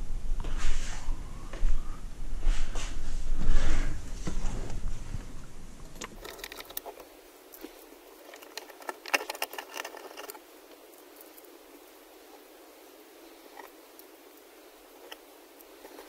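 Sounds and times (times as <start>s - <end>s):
low rumbling handling noise: 0.0s - 10.9s
rustling: 2.4s - 16.0s
small parts clicking and rattling: 6.0s - 11.6s, 13.5s - 16.0s.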